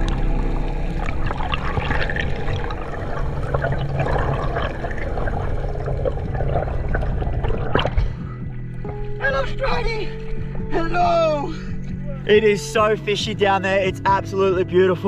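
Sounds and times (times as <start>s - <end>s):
bubbling water underwater: 0.0s - 9.2s.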